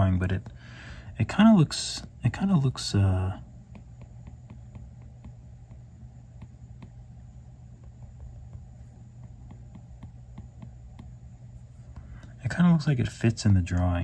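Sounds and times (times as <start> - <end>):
stylus tapping on glass screen: 3.7 - 7.0, 7.8 - 11.2.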